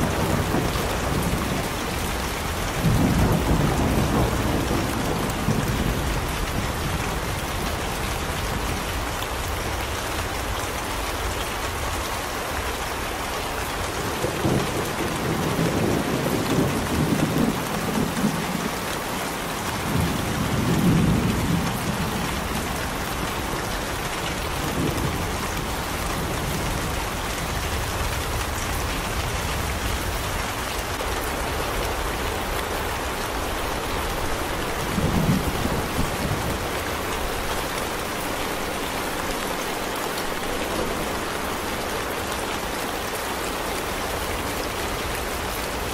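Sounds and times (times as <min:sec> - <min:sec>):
thunder rumbling: 0:00.0 - 0:07.7, 0:33.8 - 0:39.4
steady rain: 0:00.0 - 0:45.9.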